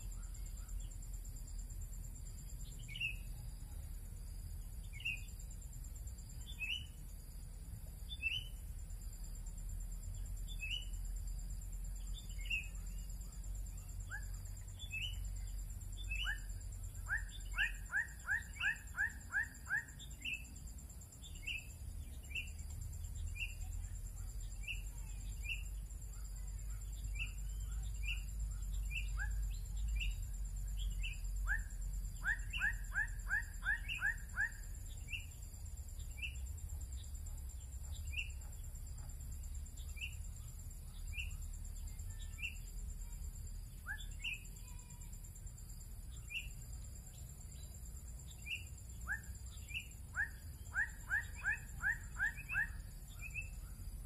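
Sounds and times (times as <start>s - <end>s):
bird chip calls: 30.8s - 35.3s, 48.5s - 53.8s.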